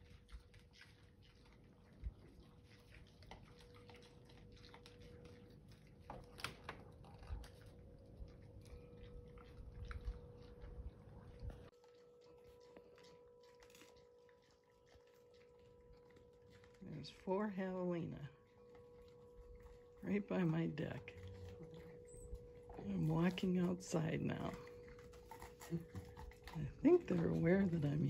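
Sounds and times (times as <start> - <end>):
animals crunching seed: 0.0 - 28.0
low background rumbling: 16.8 - 28.0.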